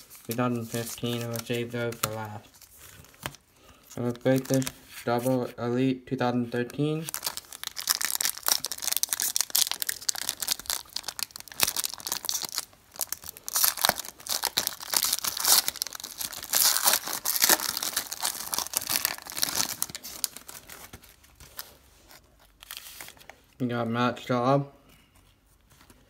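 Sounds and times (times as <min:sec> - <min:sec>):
foil wrapper tearing and crinkling: 0:07.1 - 0:23.2.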